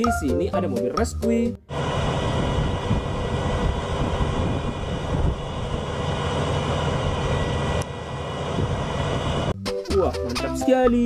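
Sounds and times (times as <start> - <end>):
diesel engine rumbling: 1.5 - 9.6.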